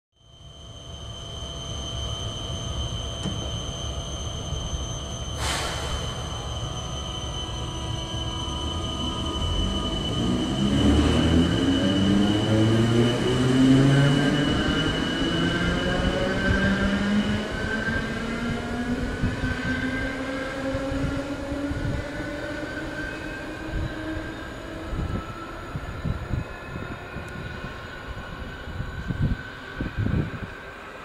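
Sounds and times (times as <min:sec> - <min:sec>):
electric train motor whine: 0:00.2 - 0:30.5
brief air hiss: 0:05.4 - 0:06.2.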